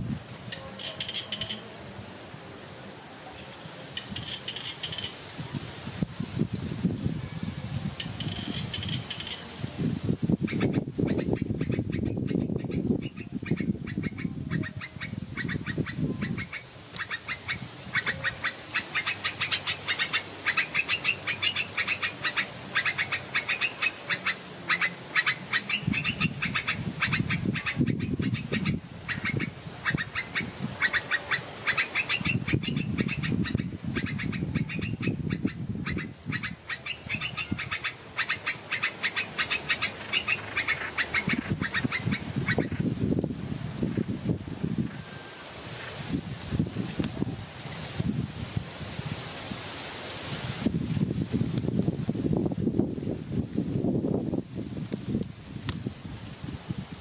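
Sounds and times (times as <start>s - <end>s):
birds chattering high-pitched: 0.5s - 1.7s, 3.4s - 5.2s, 8.0s - 9.4s, 10.5s - 42.8s
low pulsed bird calls: 0.5s - 1.7s, 10.5s - 42.8s.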